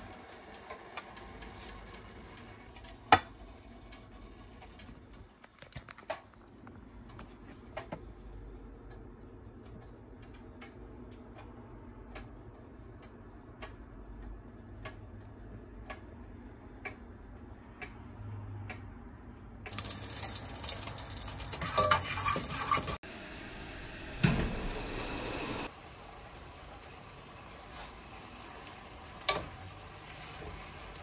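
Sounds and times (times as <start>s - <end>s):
pot simmering with hiss: 0.0s - 5.4s, 19.7s - 31.0s
light ticks: 8.8s - 11.5s
water running from kitchen tap: 19.7s - 23.0s, 25.6s - 31.0s.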